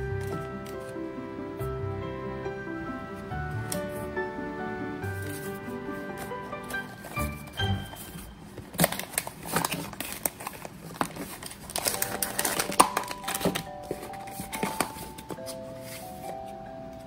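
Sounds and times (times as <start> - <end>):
cardboard box being opened: 6.2 - 16.3
plastic wrapper crinkling: 6.2 - 16.5.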